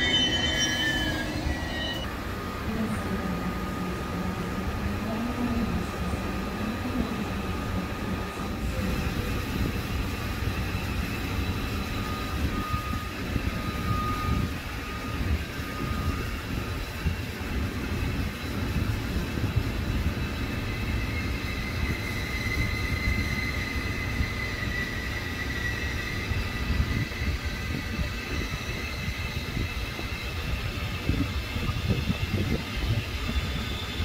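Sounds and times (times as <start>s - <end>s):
faint whining tones: 0.0s - 2.1s
electric train rumble: 0.0s - 34.0s.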